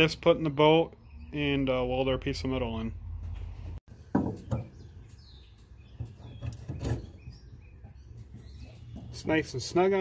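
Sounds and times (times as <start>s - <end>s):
faint birds chirping: 0.0s - 10.0s
plastic clunks and knocks: 4.1s - 4.9s.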